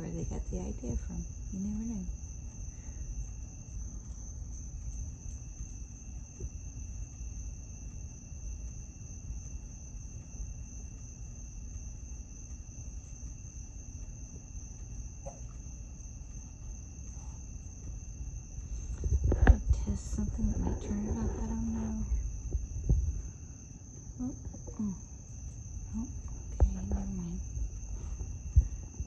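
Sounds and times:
crickets trilling: 0:00.0 - 0:29.0
low microphone rumble: 0:18.4 - 0:29.0.

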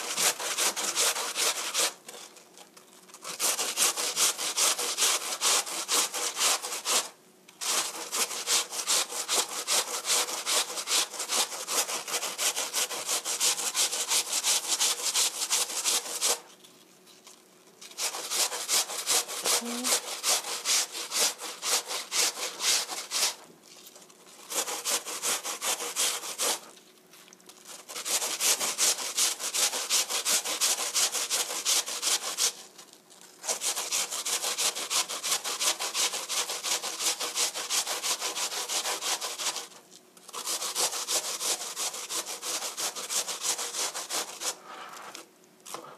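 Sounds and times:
apple scraping on metal grater: 0:00.0 - 0:02.3, 0:17.9 - 0:23.4, 0:27.6 - 0:32.7, 0:33.4 - 0:45.9.

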